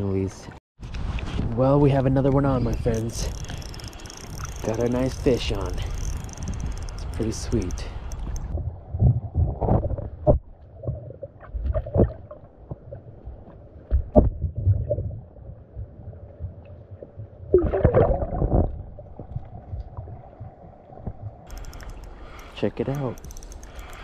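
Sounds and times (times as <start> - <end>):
muffled underwater river current: 5.9 - 22.5
underwater knocks and thuds: 8.6 - 12.9, 13.9 - 15.2, 15.8 - 21.4.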